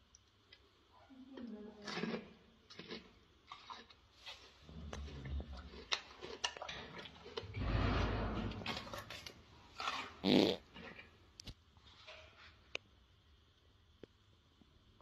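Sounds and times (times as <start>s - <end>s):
gorilla chewing crunches: 1.8s - 7.6s, 8.5s - 11.0s.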